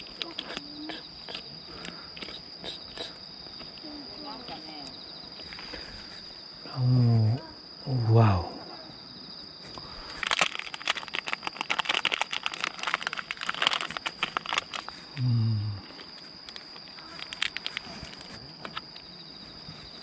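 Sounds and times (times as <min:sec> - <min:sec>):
high insect trill: 0:00.0 - 0:20.0
plastic packet crinkling: 0:10.1 - 0:15.1, 0:16.0 - 0:18.8
man humming: 0:15.2 - 0:15.9.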